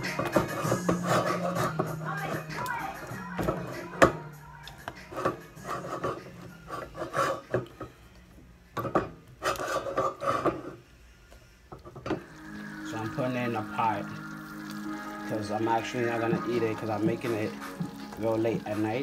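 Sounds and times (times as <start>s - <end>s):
wooden spoon scraping dough: 0.2s - 1.9s, 4.9s - 7.7s, 9.4s - 10.8s.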